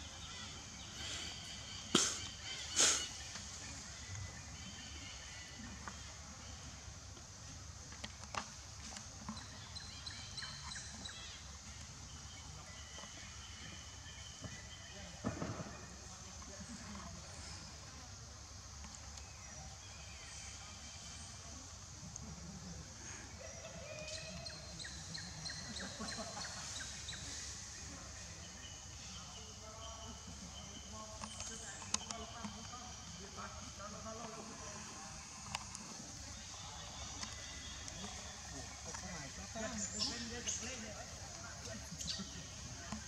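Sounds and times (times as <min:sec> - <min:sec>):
birds chirping faintly: 0:00.0 - 0:43.0.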